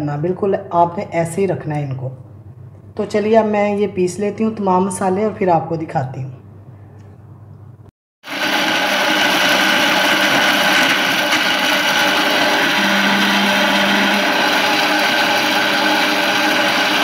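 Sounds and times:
electric spice grinder running: 8.3 - 17.0.

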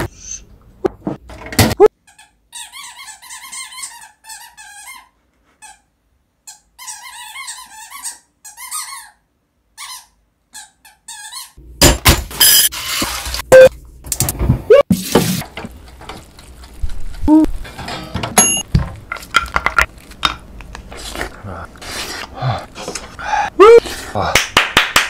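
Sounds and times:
squeaky toy squeaking: 1.8 - 11.6
handling rustling and clattering: 17.6 - 20.9.

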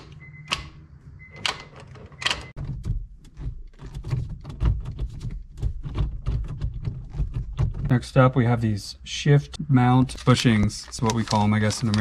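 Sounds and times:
gear lever clicks and clunks: 0.0 - 7.9.

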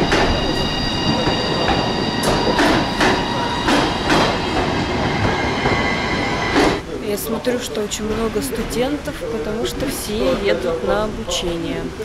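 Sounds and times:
train wheels clacking over rail joints: 0.0 - 5.8
electric train rumble and whine: 0.0 - 7.0.

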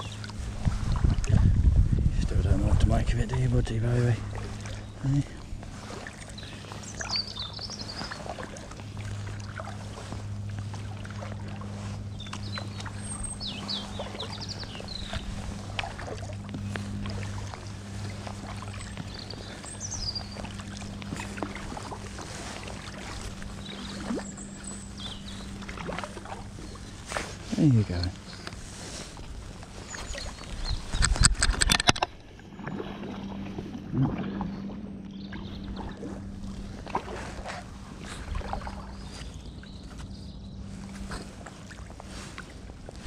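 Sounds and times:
paddle dipping and dripping water: 0.0 - 1.6, 2.8 - 43.0
steady low hum: 0.0 - 43.0
small birds chirping: 3.3 - 10.2, 11.7 - 31.5, 34.5 - 36.7, 38.0 - 43.0.

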